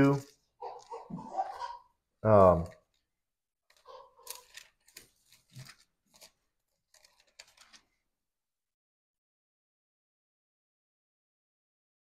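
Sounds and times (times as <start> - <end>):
pages rustling: 3.7 - 8.1.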